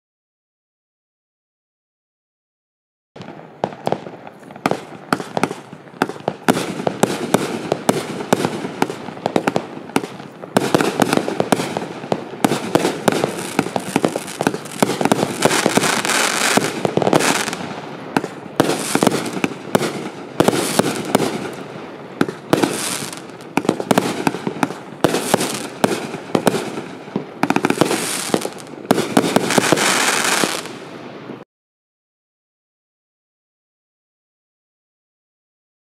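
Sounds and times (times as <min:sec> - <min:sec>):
firework shots and crackle: 0:03.2 - 0:31.4.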